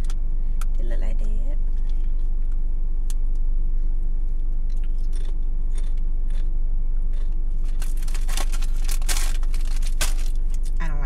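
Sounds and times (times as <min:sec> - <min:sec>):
car cabin hum: 0:00.0 - 0:11.0
crunching and chewing chip: 0:04.3 - 0:10.8.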